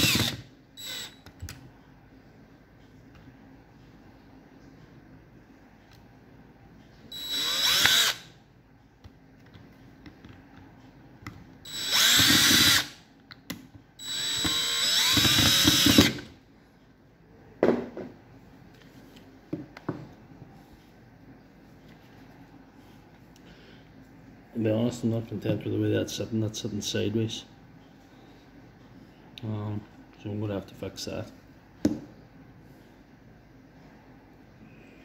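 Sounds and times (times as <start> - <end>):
power drill motor whirring: 0.0 - 1.2, 7.2 - 8.3, 11.7 - 13.0, 14.0 - 16.3.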